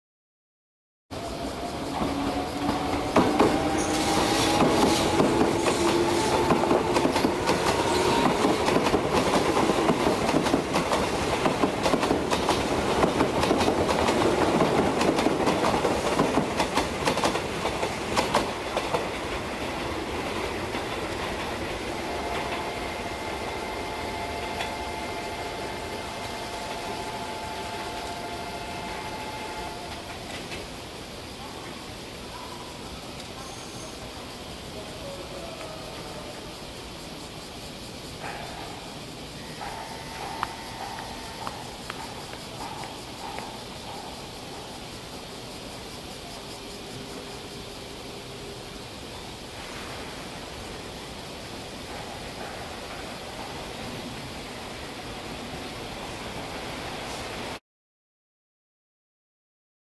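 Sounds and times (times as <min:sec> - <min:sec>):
train motor whine rising: 0:01.2 - 0:09.8, 0:21.7 - 0:30.4.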